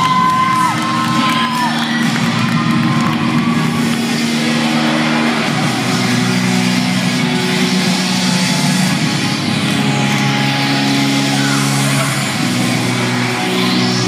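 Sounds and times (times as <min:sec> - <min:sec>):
synth music over sound system: 0:00.0 - 0:14.0.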